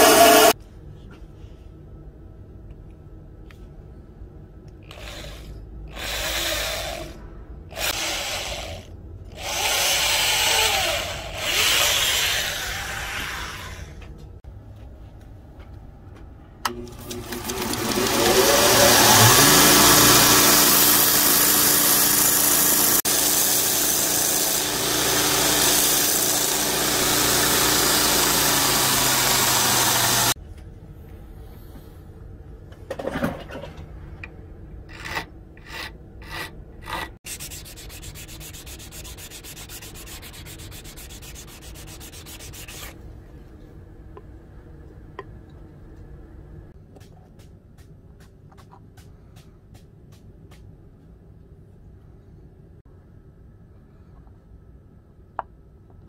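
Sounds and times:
belt grinder sanding wood: 0.0 - 0.6, 17.2 - 30.4, 35.0 - 42.9
hand-sanding wooden handle: 17.8 - 30.4, 35.6 - 43.0.

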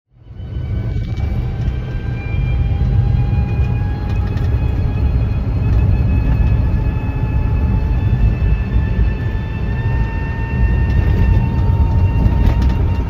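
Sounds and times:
faint rising whine: 0.1 - 13.0
car cabin road rumble: 0.7 - 8.4, 10.2 - 13.0.

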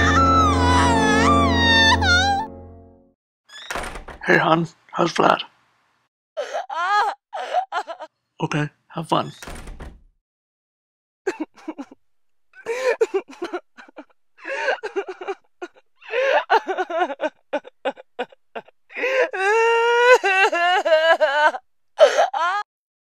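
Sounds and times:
person sobbing and moaning: 0.0 - 2.5, 6.4 - 8.1, 11.3 - 12.0, 12.6 - 22.7
person wailing: 0.0 - 2.5, 19.0 - 22.6.

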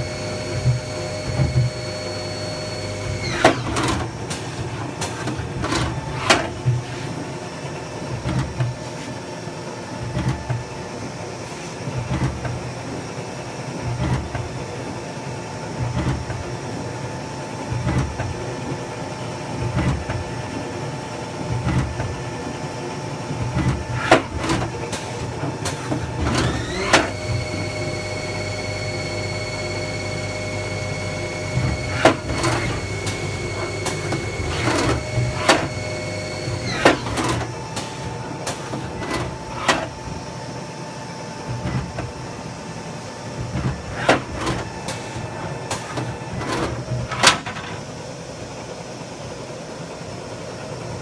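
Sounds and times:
lathe spindle whine: 0.0 - 4.0, 25.6 - 41.4
low steady machine tone: 0.0 - 5.0, 13.8 - 43.6.

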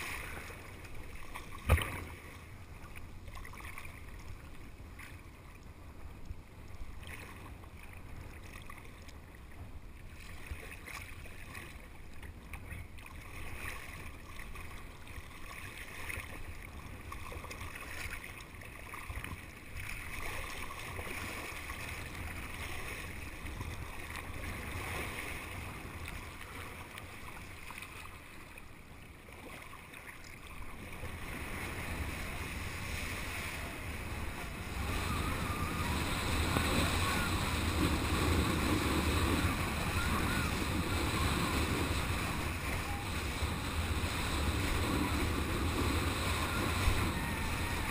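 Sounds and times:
water sloshing and splashing: 0.0 - 5.7, 6.6 - 47.9
wind noise on microphone: 31.0 - 47.9.

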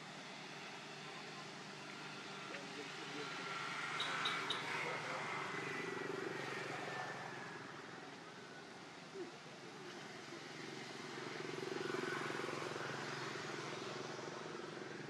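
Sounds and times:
steady engine drone: 0.0 - 15.0.

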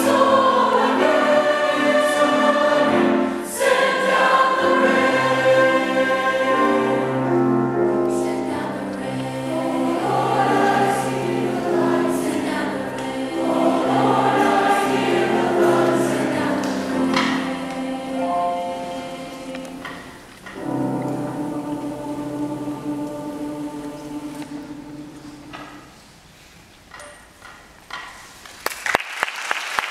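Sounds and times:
mixed choir singing in parts: 0.0 - 26.1.

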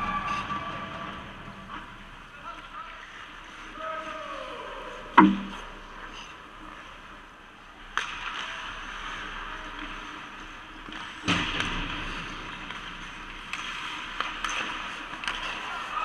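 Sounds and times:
skates scraping on ice: 8.0 - 16.0.

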